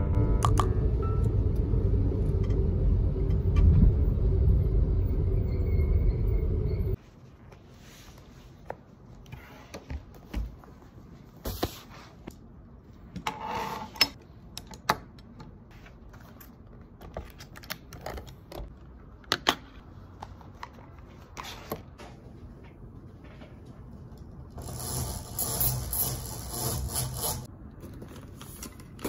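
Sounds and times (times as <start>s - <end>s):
low hum: 0.0s - 7.0s.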